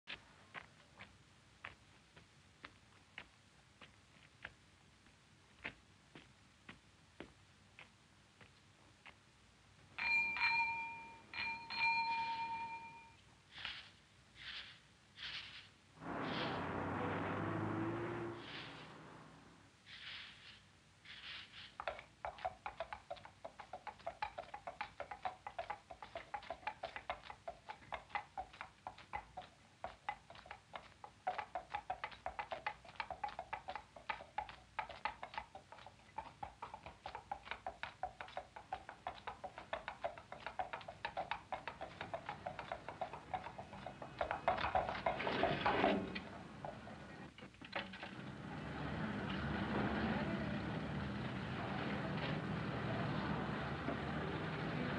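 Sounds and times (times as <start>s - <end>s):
horse hooves clopping on pavement: 0.1s - 9.3s, 21.8s - 47.2s
rush of noise: 16.0s - 19.6s.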